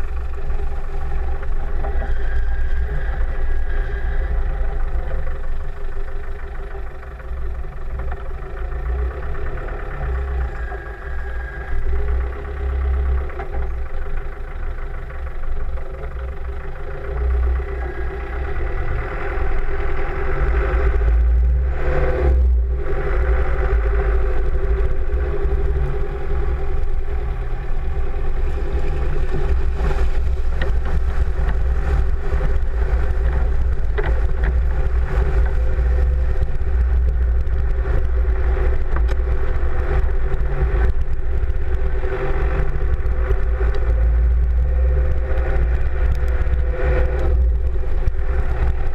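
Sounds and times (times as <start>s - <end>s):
vehicle engine running low: 0.0s - 48.9s.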